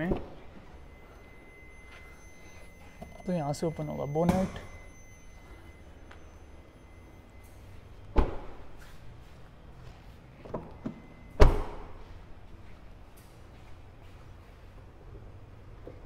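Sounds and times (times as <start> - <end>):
car door shutting: 8.1 - 8.7, 10.4 - 12.0.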